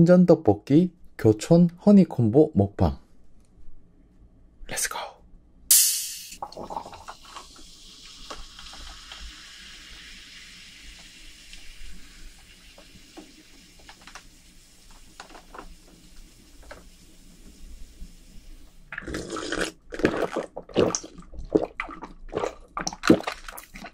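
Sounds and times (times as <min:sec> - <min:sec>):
bottle cap hiss: 0:05.7 - 0:06.4
cola fizzing and splashing: 0:06.4 - 0:17.5, 0:18.3 - 0:23.9.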